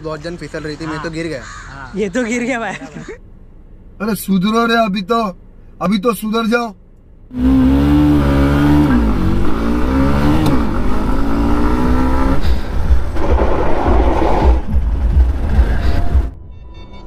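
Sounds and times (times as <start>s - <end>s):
motorcycle engine revving: 7.3s - 16.4s
rough gritty engine: 7.3s - 16.4s.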